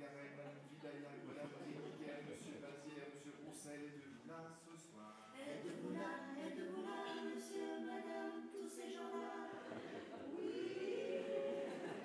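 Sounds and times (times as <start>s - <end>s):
vocal quartet singing in harmony: 5.2s - 12.0s.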